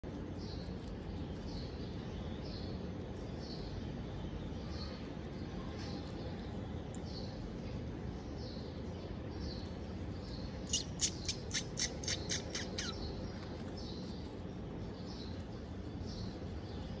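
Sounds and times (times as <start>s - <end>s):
low background noise: 0.0s - 17.0s
sharp high chirps: 10.6s - 13.0s.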